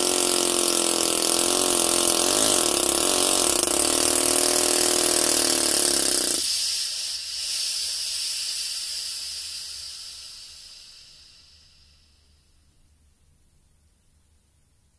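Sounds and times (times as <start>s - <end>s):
small air motor running: 0.0s - 11.8s
air hissing: 0.0s - 12.6s.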